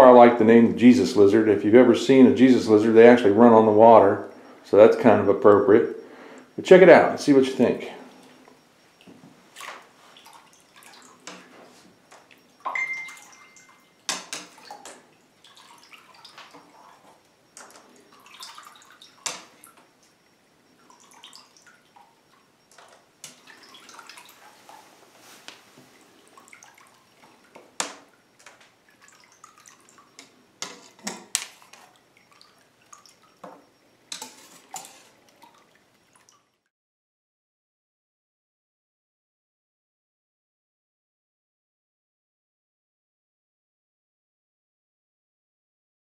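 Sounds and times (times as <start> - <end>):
thin high tone: 0.0 - 9.0, 11.0 - 15.4
water splashes and drips: 9.0 - 20.1, 20.8 - 36.7.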